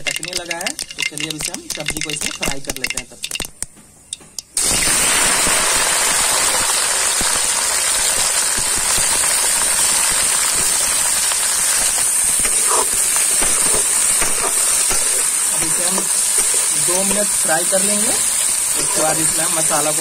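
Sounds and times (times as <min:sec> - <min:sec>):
spatula clicks stirring: 0:00.0 - 0:04.5
vegetables sizzling in hot oil: 0:04.6 - 0:20.0.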